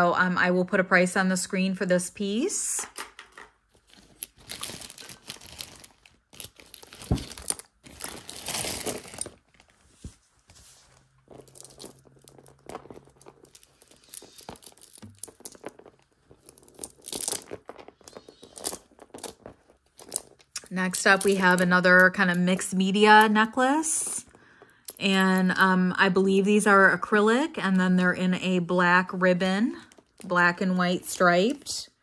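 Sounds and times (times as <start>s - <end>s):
plastic bag crinkling: 3.7s - 22.2s
beads clicking: 3.8s - 9.4s, 11.2s - 22.8s, 24.2s - 25.4s.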